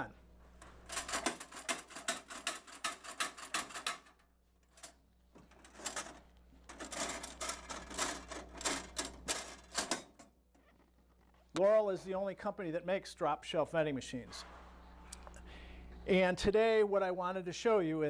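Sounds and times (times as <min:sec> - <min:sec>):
vending machine metal clicks: 0:00.9 - 0:04.2.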